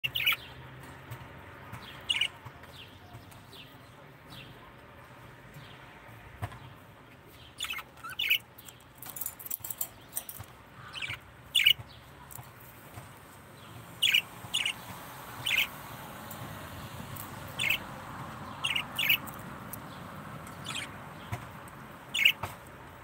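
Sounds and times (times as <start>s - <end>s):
budgerigars chirping: 0.0s - 0.5s, 2.0s - 2.4s, 7.5s - 8.5s, 10.8s - 11.9s, 13.9s - 15.8s, 17.3s - 22.5s.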